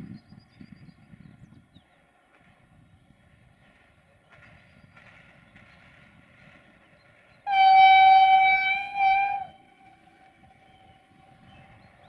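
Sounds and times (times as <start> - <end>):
railcar horn blast: 7.5 - 9.9.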